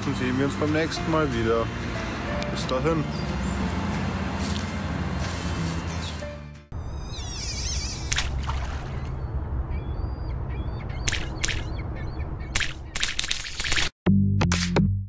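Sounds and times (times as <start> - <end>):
warbling bird-like chirps: 6.8 - 13.2.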